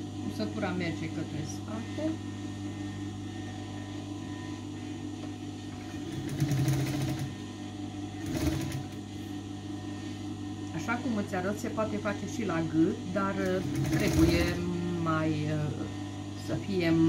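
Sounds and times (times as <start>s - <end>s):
sewing machine stitching: 5.9s - 7.3s, 8.2s - 9.0s, 13.5s - 14.6s.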